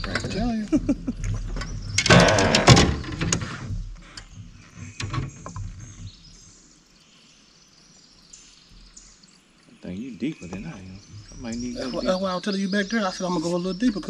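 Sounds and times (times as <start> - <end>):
quiet lake ambience: 2.6 - 11.8.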